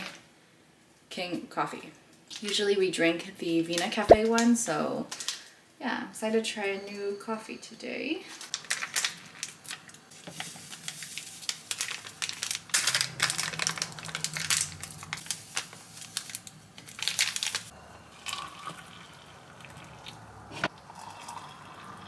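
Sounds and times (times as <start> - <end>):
plastic sachets crinkling: 8.4 - 17.7
hot water pouring into a mug: 18.0 - 22.0.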